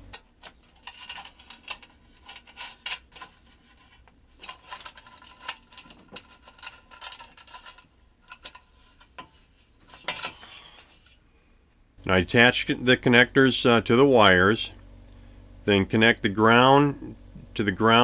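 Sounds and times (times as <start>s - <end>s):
metal cover clicking and clinking: 0.1s - 3.4s, 4.4s - 8.7s.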